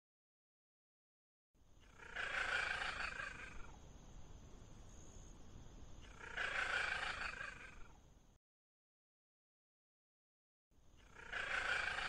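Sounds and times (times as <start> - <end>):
cat calling: 1.9 - 3.7, 6.1 - 7.9, 11.0 - 12.0.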